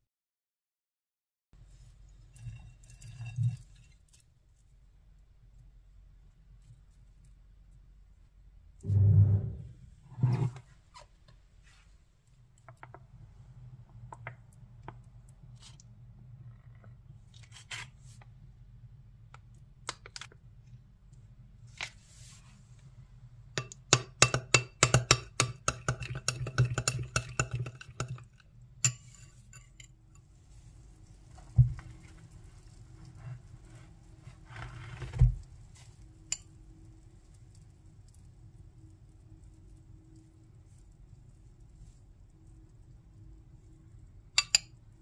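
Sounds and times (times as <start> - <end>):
metal spoon clinking in glass bowl: 44.4 - 44.7.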